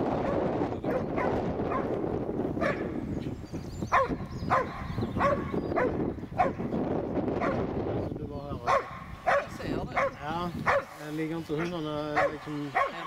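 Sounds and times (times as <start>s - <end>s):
dog barking sharply: 2.6s - 2.9s, 4.0s - 6.7s, 8.7s - 11.0s, 11.6s - 13.0s.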